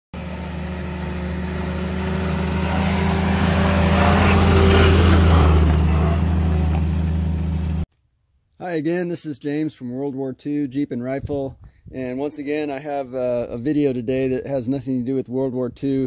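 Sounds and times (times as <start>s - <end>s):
jeep engine driving past: 0.2s - 7.8s.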